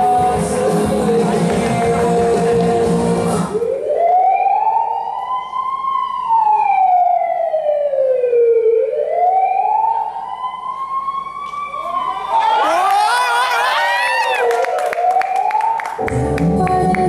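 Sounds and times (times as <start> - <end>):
song playing: 0.0 - 4.2, 16.0 - 17.0
wailing siren: 3.4 - 16.1.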